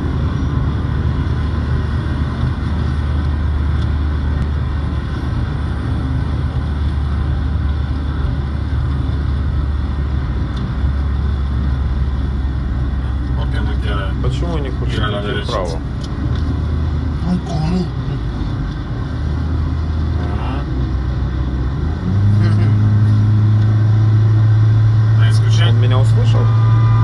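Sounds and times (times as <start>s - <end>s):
car engine and tyre rumble: 0.0s - 27.0s.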